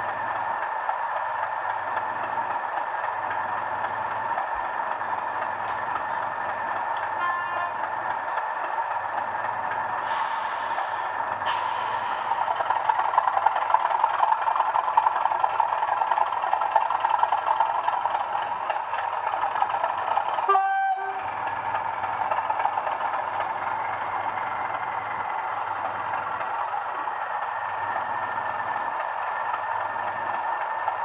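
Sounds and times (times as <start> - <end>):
diesel engine sound from small speaker: 0.0 - 31.0
short horn note: 20.5 - 21.2.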